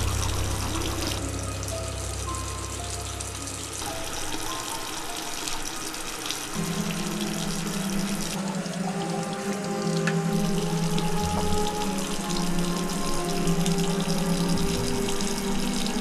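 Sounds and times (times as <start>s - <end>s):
background music: 0.0s - 16.0s
tap running into sink: 10.0s - 12.4s.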